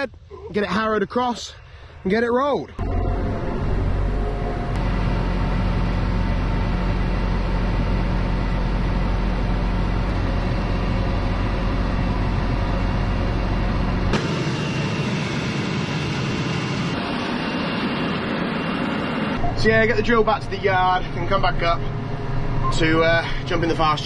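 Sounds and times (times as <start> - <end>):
tractor engine running: 2.8 - 24.0.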